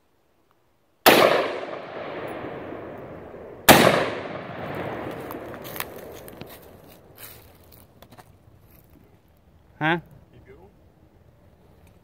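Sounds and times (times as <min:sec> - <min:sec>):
gunshots with long echo: 0:01.0 - 0:06.3.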